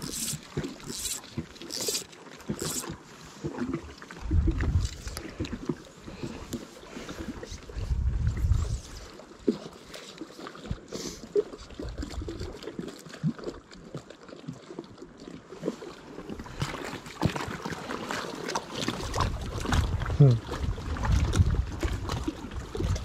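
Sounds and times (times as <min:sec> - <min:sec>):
water lapping at shoreline: 0:00.0 - 0:23.0
wind buffeting microphone: 0:04.2 - 0:05.2, 0:07.6 - 0:09.1, 0:19.1 - 0:23.0.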